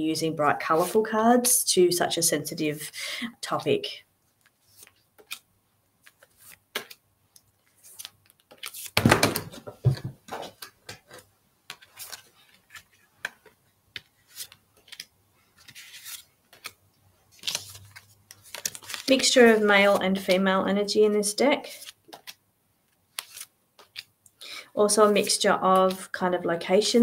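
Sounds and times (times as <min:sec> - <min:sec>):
cards rustling: 0:04.3 - 0:20.5, 0:21.6 - 0:26.1
cards clicking and tapping: 0:06.0 - 0:16.8, 0:21.8 - 0:22.4, 0:23.1 - 0:24.4.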